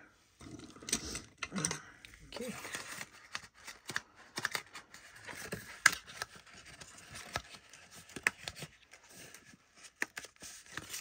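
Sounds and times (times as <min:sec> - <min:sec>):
paper box rustling: 0:02.4 - 0:11.0.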